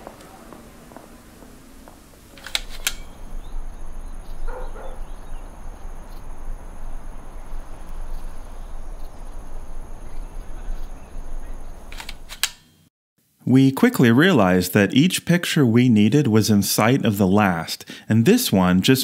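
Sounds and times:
wind rumbling on microphone: 0:00.0 - 0:12.3
sharp clicks: 0:02.4 - 0:03.2, 0:11.9 - 0:12.7.

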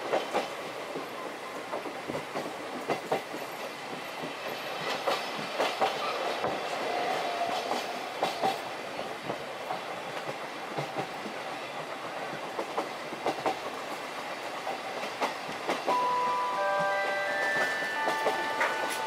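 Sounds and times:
train wheels clicking over rail joints: 0:00.0 - 0:16.0
train running rumble: 0:00.0 - 0:19.0.

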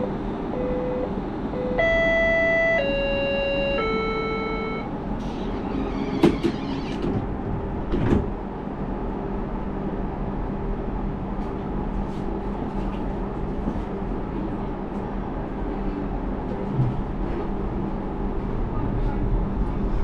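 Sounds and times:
tram equipment hum: 0:00.0 - 0:20.0
sliding doors knocking shut: 0:05.5 - 0:08.4.

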